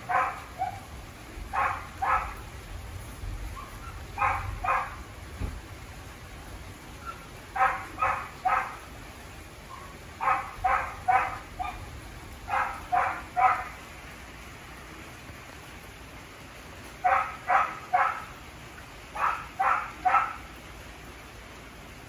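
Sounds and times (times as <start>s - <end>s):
dog barking: 0.0s - 0.8s, 1.5s - 2.4s, 3.6s - 5.0s, 7.1s - 8.8s, 9.7s - 11.8s, 12.5s - 13.8s, 17.0s - 18.3s, 19.2s - 20.4s
rain hissing: 0.0s - 22.0s.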